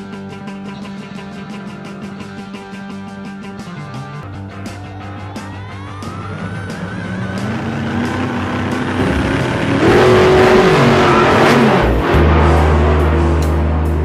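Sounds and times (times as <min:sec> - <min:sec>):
vehicle engine revving past: 0:06.1 - 0:14.0.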